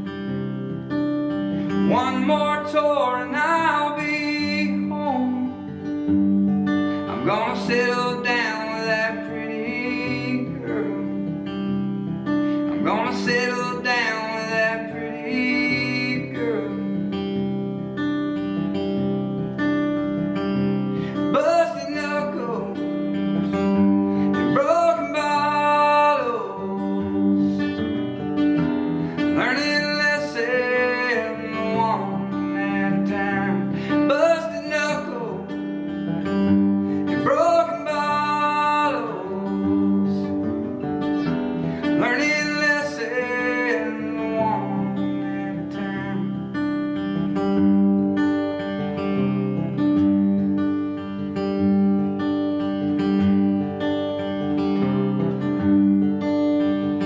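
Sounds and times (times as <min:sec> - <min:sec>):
acoustic guitar: 0:00.0 - 0:57.0.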